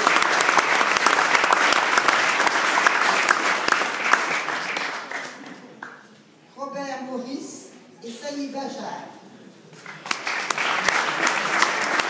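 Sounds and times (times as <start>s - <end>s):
audience applauding: 0.0s - 6.0s, 9.8s - 12.0s.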